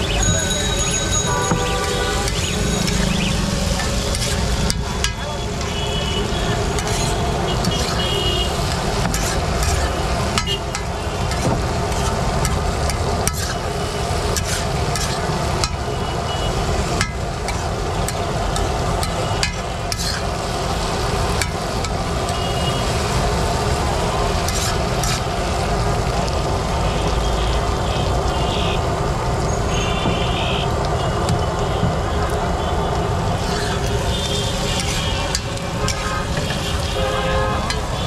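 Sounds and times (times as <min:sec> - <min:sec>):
food sizzling in oil: 0:00.0 - 0:27.3, 0:33.2 - 0:38.0
low rumble of traffic: 0:00.0 - 0:38.0
metal spatula scraping griddle: 0:03.7 - 0:05.2, 0:06.7 - 0:08.1, 0:08.8 - 0:13.7, 0:14.3 - 0:15.4, 0:19.0 - 0:20.3, 0:24.4 - 0:25.3, 0:33.4 - 0:36.6.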